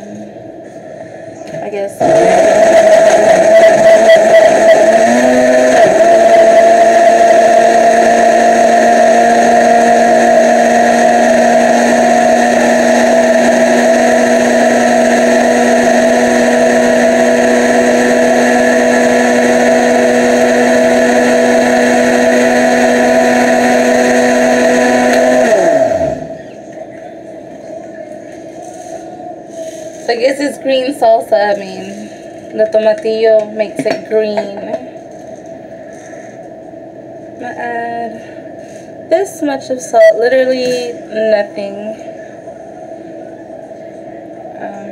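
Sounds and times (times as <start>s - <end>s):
blender motor running: 2.0s - 26.4s
blender spinning down: 2.0s - 26.4s.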